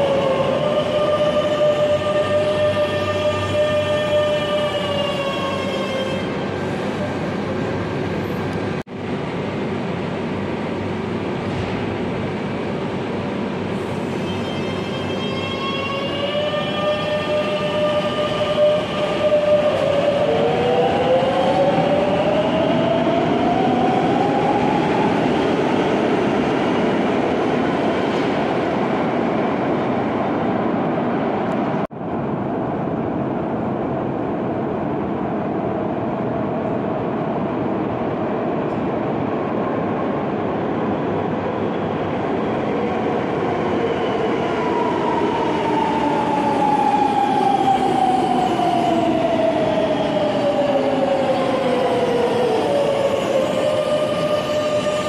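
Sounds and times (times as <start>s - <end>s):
train rumble in tunnel: 0.0s - 55.0s
train braking whine: 13.8s - 22.0s.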